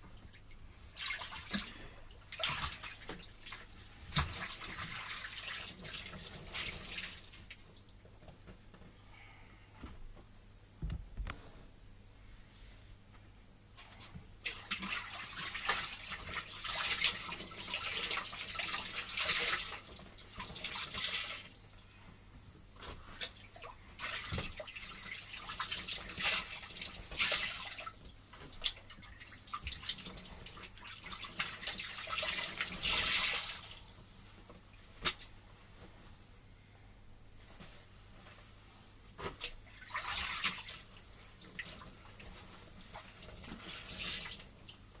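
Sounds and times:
wet laundry splashing and dripping: 0.0s - 7.9s, 14.4s - 35.4s, 39.1s - 45.0s.

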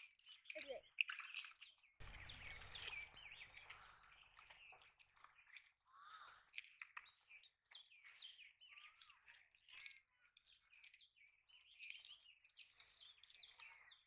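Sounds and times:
small birds chirping: 0.0s - 14.0s
low rumble: 2.0s - 4.7s.

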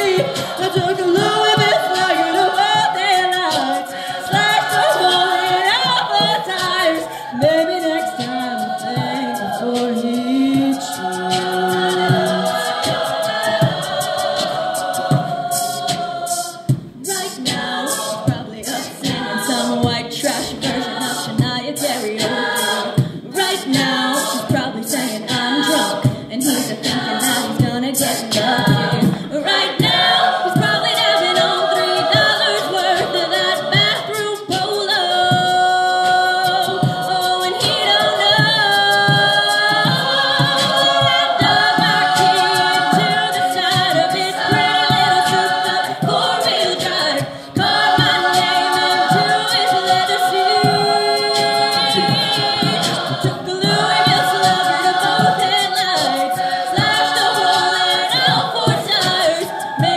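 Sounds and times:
choir singing a cappella: 0.0s - 59.9s
vocal percussion beat: 0.0s - 59.9s.

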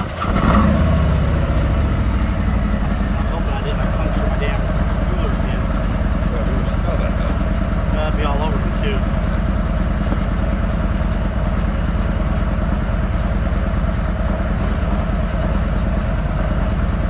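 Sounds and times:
motorcycle engine idling: 1.0s - 17.0s.

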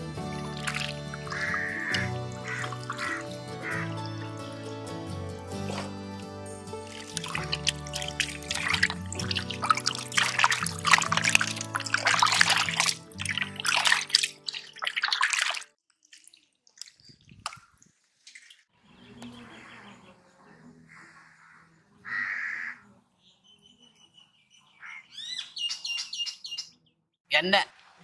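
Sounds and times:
water sloshing and splashing: 0.3s - 4.6s, 6.7s - 18.8s
bird chirping: 18.8s - 27.1s.

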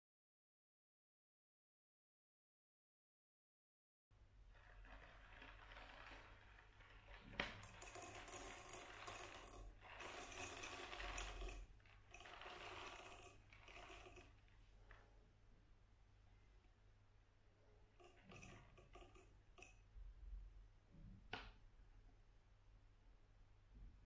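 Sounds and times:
coffee beans pattering into cup: 4.8s - 14.4s.

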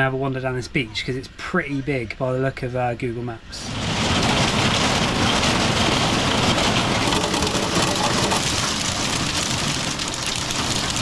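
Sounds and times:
heavy rain drumming on roof: 3.6s - 11.0s.

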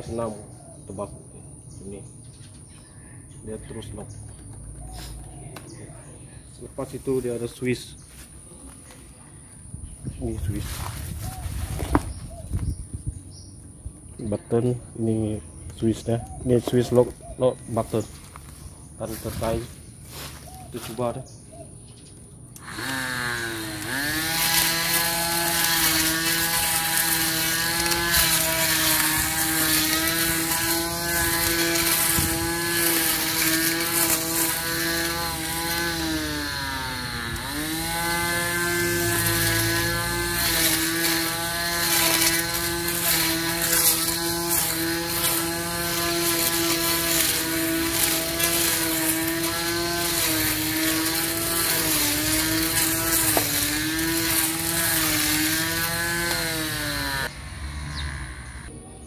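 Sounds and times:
electric grass trimmer whining: 22.5s - 58.8s.

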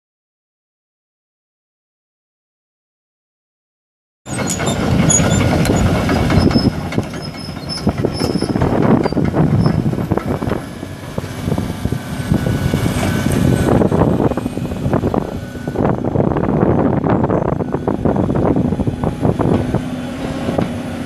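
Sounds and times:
track chains clanking and rattling: 4.3s - 11.5s
diesel engine running: 4.3s - 21.0s
track squeals: 4.3s - 21.0s.

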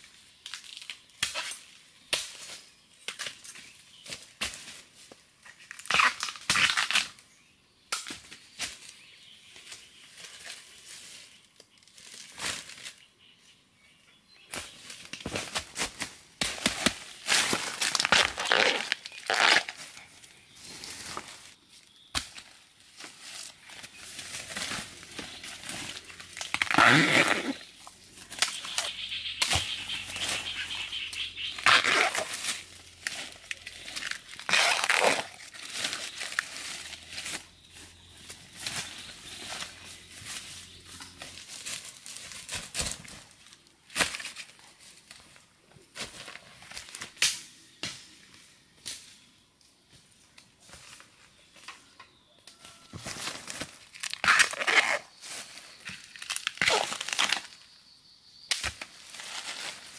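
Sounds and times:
rustling and crinkling: 14.5s - 47.3s, 48.0s - 57.7s, 58.6s - 59.9s.

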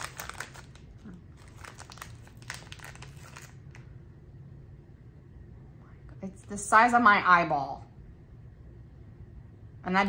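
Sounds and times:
snack bag crinkling: 0.0s - 3.9s.

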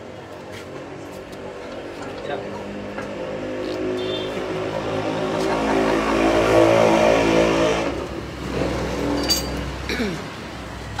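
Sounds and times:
vehicle engine revving: 2.5s - 9.9s.

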